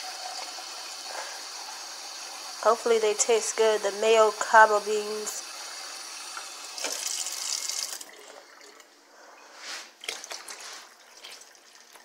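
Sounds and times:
water pouring splashing trickle: 5.5s - 8.9s, 10.0s - 12.0s.

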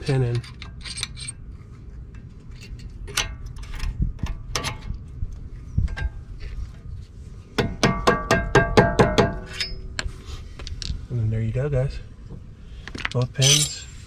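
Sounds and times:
metal clinks: 13.4s - 13.9s.

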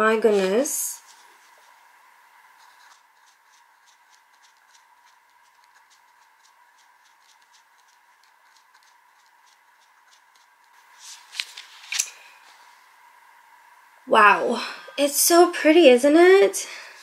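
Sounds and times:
faint steady hum: 0.0s - 17.0s
fountain pen scratching on paper: 1.0s - 1.8s, 2.5s - 10.8s.

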